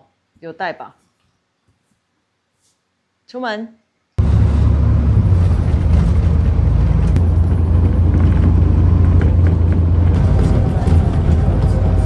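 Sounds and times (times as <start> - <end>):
bus engine and road rumble: 4.2 - 12.0.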